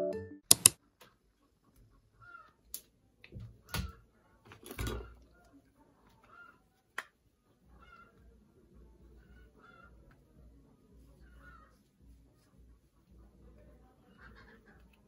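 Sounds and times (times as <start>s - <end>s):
background music: 0.0s - 0.7s
sharp clicks: 0.5s - 0.8s.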